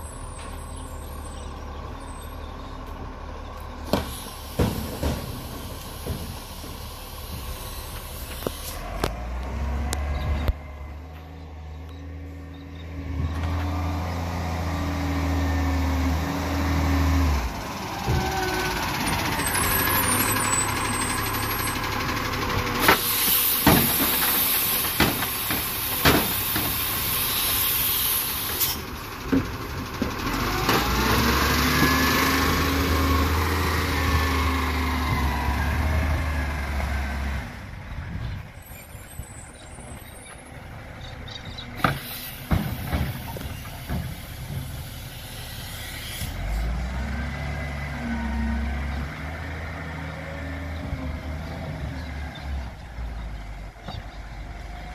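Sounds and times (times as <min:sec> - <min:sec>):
truck engine pulling away: 0:00.0 - 0:54.9
clunks and knocks: 0:03.8 - 0:07.5, 0:22.5 - 0:26.9, 0:41.6 - 0:45.0
long hiss of air: 0:26.3 - 0:28.8.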